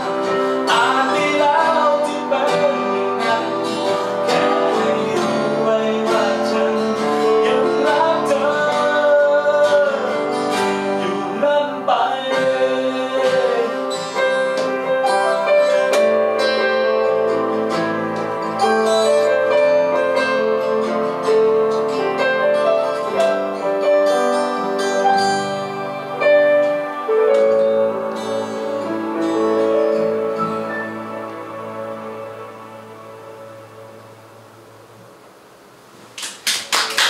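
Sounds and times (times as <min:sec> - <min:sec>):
man singing: 0:00.0 - 0:14.3
strummed acoustic guitar: 0:00.0 - 0:35.0
keyboard: 0:00.0 - 0:35.5.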